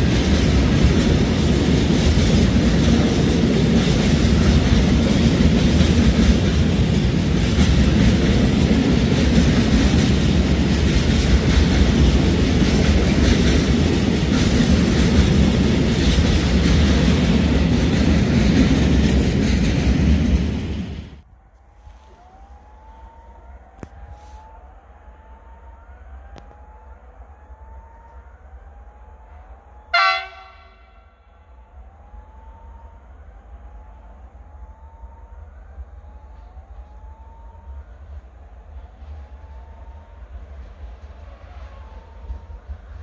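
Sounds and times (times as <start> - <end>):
loud horn blast: 29.9 - 31.3.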